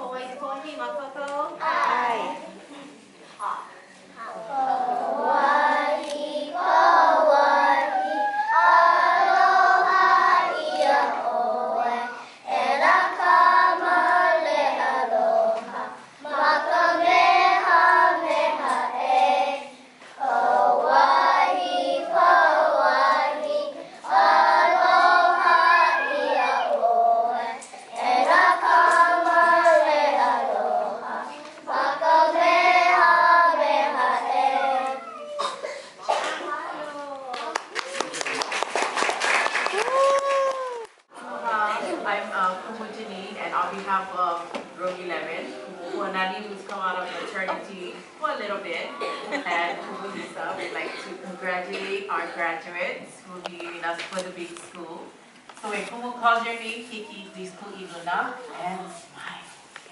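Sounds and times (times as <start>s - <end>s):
children singing together: 4.3s - 36.2s.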